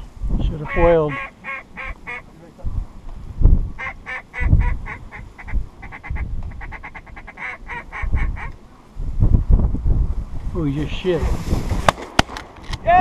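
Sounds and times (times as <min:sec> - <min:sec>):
wind rumbling on microphone: 0:00.0 - 0:13.0
duck quacking: 0:00.6 - 0:02.4, 0:03.8 - 0:08.5.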